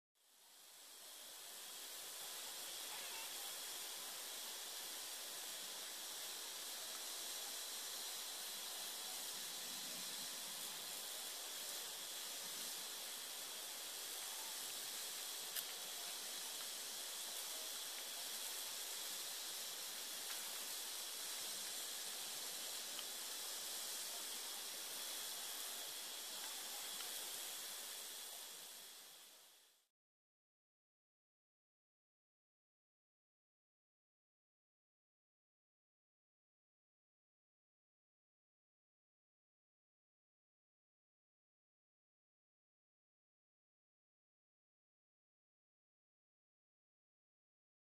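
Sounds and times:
recording noise hiss: 0:00.2 - 0:29.9.

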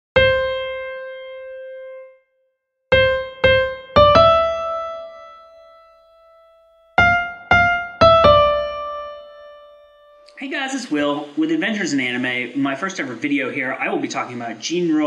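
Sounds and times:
keyboard notes: 0:00.2 - 0:02.3, 0:02.9 - 0:11.4.

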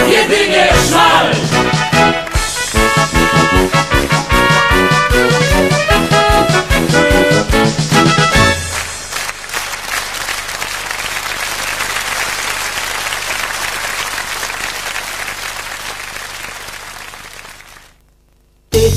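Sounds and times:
song with brass ending: 0:00.0 - 0:09.3
audience applauding: 0:08.0 - 0:18.0.

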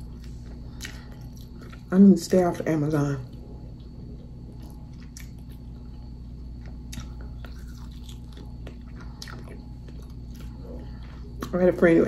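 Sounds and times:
biting and chewing rib: 0:03.7 - 0:11.6.

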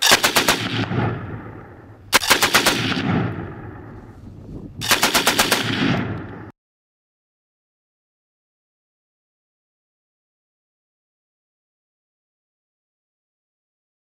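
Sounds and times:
machine gun bursts with echo: 0:00.0 - 0:03.8, 0:04.8 - 0:06.5.

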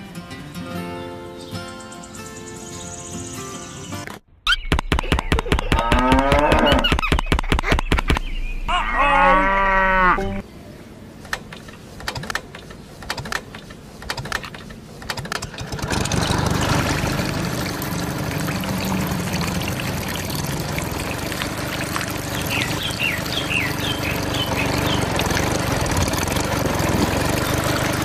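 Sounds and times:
small engine running: 0:15.3 - 0:28.0.

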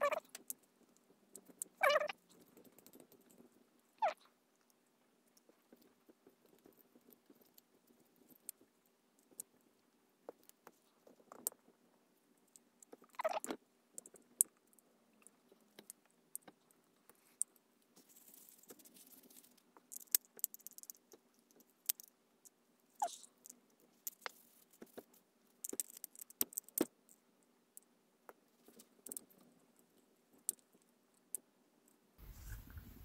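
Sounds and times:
soft rustle: 0:16.5 - 0:21.7, 0:23.0 - 0:26.7, 0:32.2 - 0:33.0.

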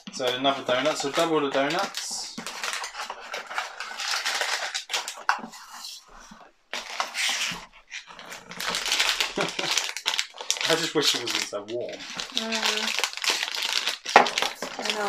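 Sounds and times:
foil wrappers crinkling and tearing: 0:00.0 - 0:05.8, 0:06.7 - 0:15.0.

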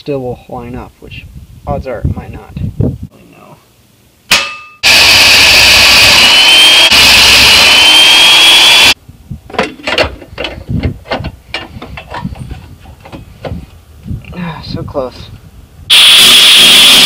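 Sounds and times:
brief metallic ring: 0:04.3 - 0:04.8
drill press cutting steel: 0:04.8 - 0:09.0.

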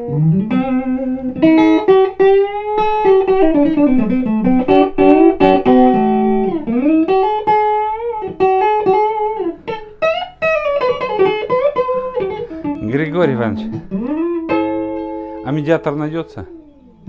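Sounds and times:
electric guitar lead lines: 0:00.0 - 0:17.0.

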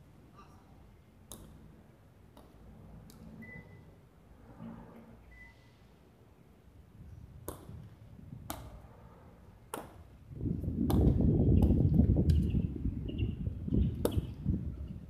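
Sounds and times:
low rumble on microphone: 0:06.9 - 0:15.0
ball cracking against wall: 0:10.8 - 0:11.8.

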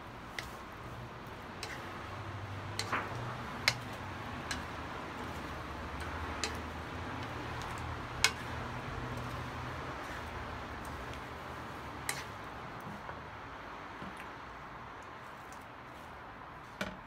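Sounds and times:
food sizzling in wok: 0:00.0 - 0:12.4
spatulas clicking against pan: 0:00.3 - 0:11.4, 0:12.0 - 0:12.4.

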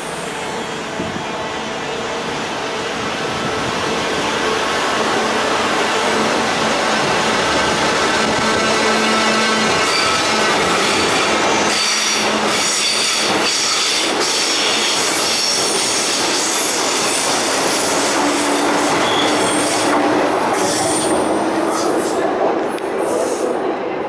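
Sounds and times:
train rolling rumble: 0:00.0 - 0:24.0
train wheels squealing: 0:09.0 - 0:19.9.

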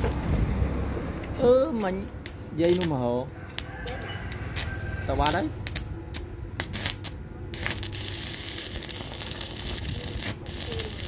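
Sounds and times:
welding arc crackling: 0:01.8 - 0:03.0, 0:03.6 - 0:11.0.

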